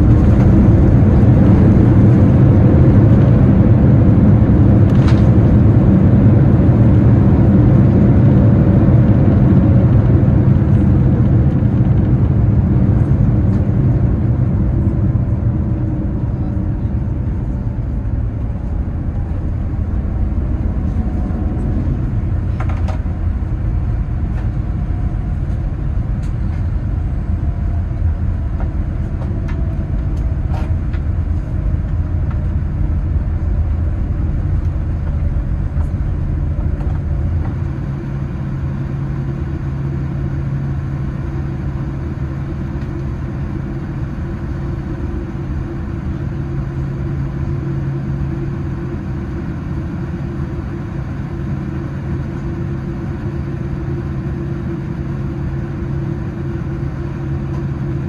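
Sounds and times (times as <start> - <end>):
deep aircraft rumble: 0.0 - 58.0
faint whine: 0.0 - 58.0.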